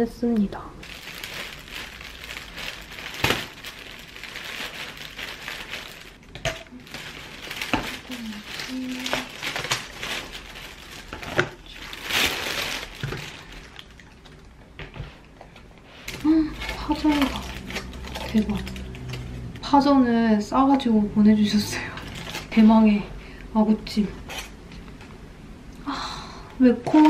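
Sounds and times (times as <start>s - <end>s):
plastic bag rustling: 0.8s - 14.4s, 15.0s - 20.1s, 21.4s - 23.1s.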